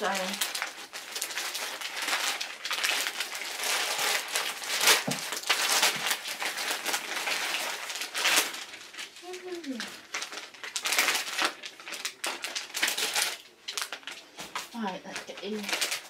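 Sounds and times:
packaging crinkling: 0:00.0 - 0:16.0.

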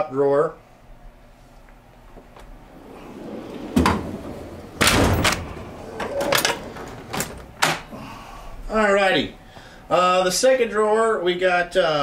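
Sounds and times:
metal clunks: 0:02.4 - 0:07.9
metal drawers sliding: 0:02.4 - 0:07.9.

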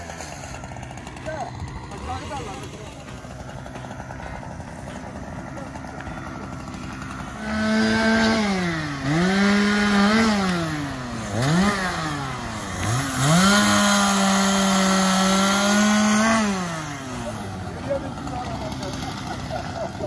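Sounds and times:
chainsaw revving: 0:00.0 - 0:20.0.

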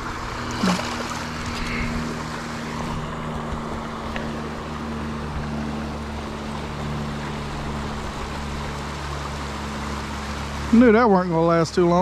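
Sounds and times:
steady low hum: 0:00.0 - 0:12.0
fish splashing into water: 0:00.3 - 0:02.5.

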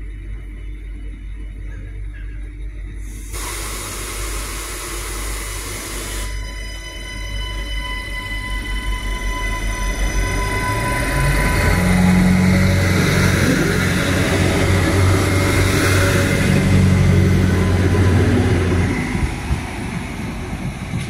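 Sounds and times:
diesel railcar engine droning: 0:00.0 - 0:21.0
rolling wheel and rail noise: 0:06.2 - 0:21.0.

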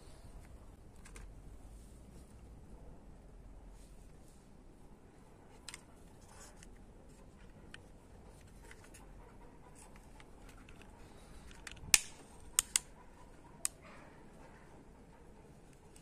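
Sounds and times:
plastic toy clicks: 0:09.9 - 0:12.9.

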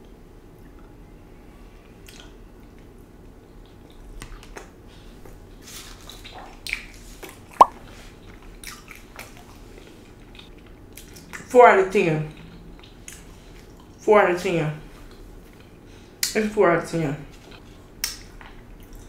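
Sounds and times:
person chewing food: 0:12.4 - 0:14.0.

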